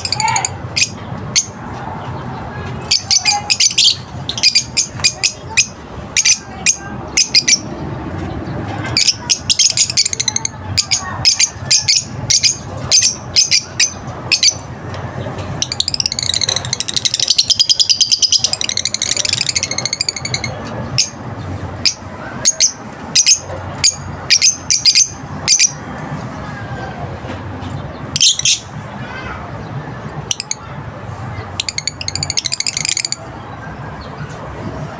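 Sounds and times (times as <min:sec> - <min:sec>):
lovebirds chirping: 0:00.0 - 0:26.0
birds chattering rapidly: 0:00.0 - 0:34.9.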